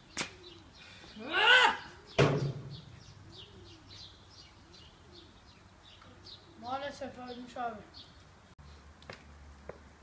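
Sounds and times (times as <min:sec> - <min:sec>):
pigeons cooing: 0:00.0 - 0:06.9
small birds chirping: 0:00.0 - 0:09.9
person crying out: 0:01.2 - 0:01.9
sharp thump: 0:02.2 - 0:02.8.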